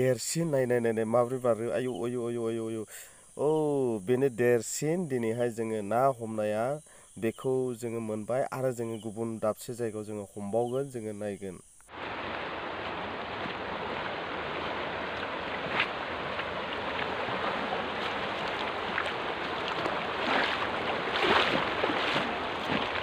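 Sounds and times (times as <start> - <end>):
river water rushing: 11.9 - 23.0.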